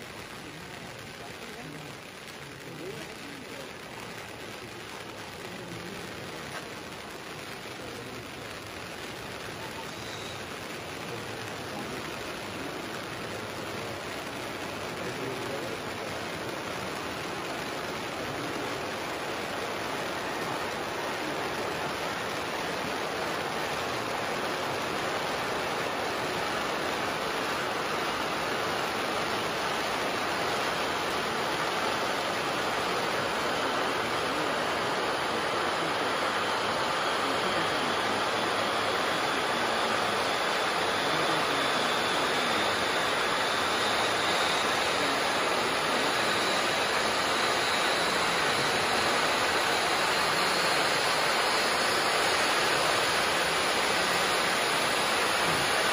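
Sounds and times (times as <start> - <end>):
firework fountains hissing: 0.0 - 55.9
faint high whistle: 9.6 - 10.5.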